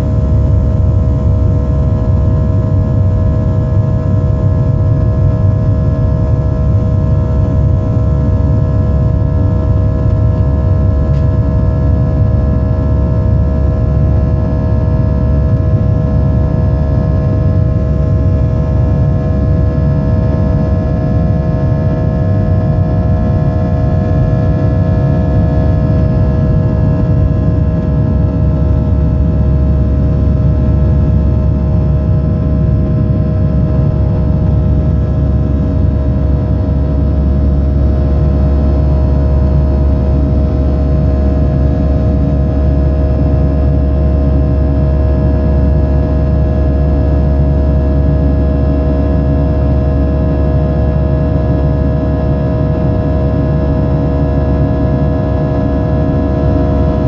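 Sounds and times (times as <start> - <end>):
jet engines rumbling in cabin: 0.0 - 57.0.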